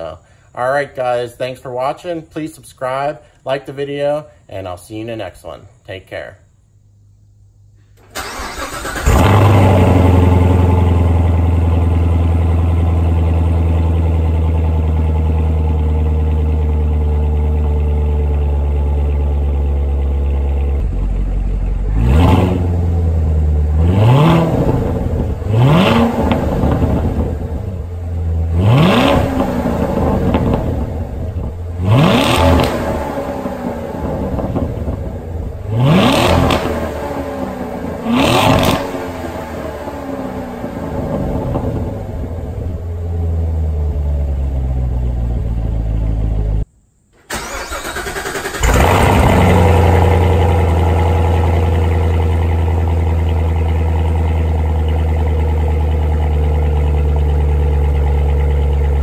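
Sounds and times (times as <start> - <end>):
car engine idling: 6.9 - 46.7, 47.3 - 59.0
car engine starting: 7.9 - 59.0
car engine revving: 8.1 - 15.5, 20.2 - 46.6, 47.3 - 55.8.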